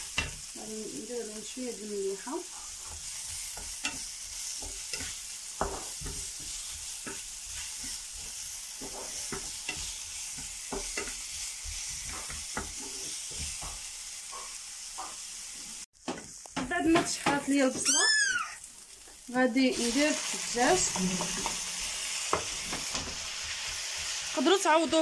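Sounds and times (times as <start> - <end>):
vegetables sizzling in a frying pan: 0.0 - 25.0
wooden spatula scraping a pan: 1.9 - 17.9, 19.7 - 24.7.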